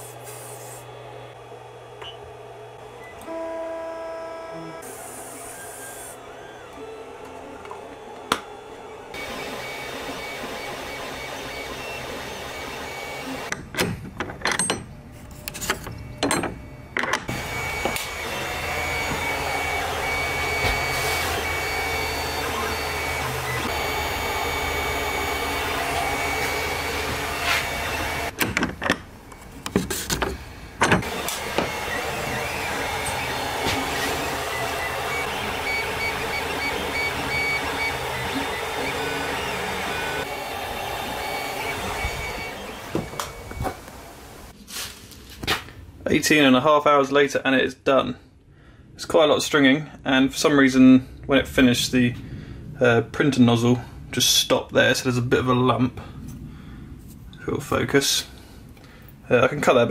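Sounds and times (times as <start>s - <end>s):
stepper motors whining: 0.0s - 13.6s, 15.4s - 28.4s, 29.3s - 44.6s
cooling fan humming: 0.0s - 13.7s, 15.0s - 44.6s.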